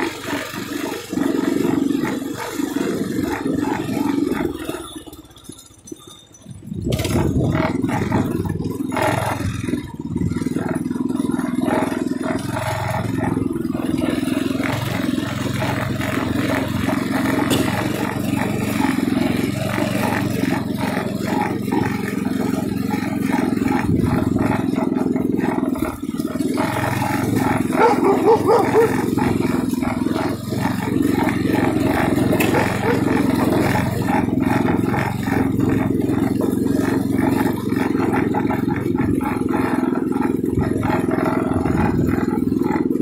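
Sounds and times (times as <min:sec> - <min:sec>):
mini bike engine running: 0:00.0 - 0:43.0.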